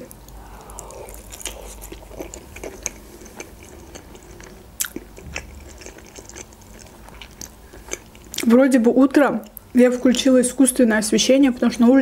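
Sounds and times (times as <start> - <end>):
chewing with wet mouth clicks: 0.2 - 8.5.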